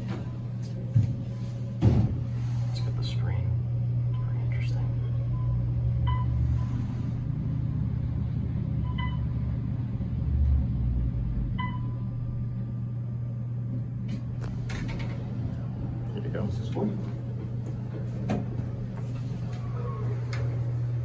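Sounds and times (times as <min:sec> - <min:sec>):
elevator ride rumble and hum: 0:00.0 - 0:21.0
short electronic beeps: 0:08.8 - 0:09.3, 0:11.6 - 0:12.0.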